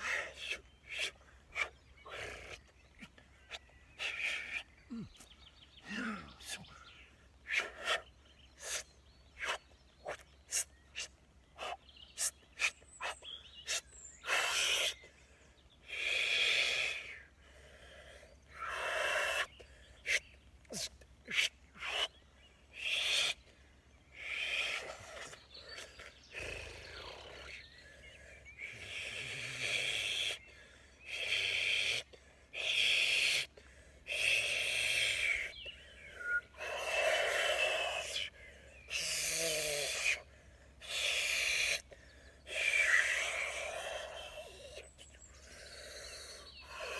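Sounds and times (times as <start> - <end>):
man making breathy vocal sounds: 4.0 - 8.0, 36.5 - 46.9.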